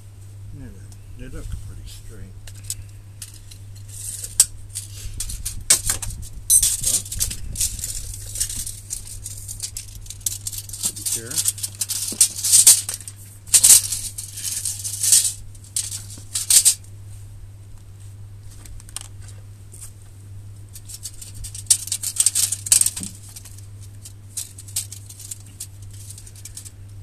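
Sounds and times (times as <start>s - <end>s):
tape measure scraping and rattling: 2.5s - 16.8s, 20.7s - 26.8s.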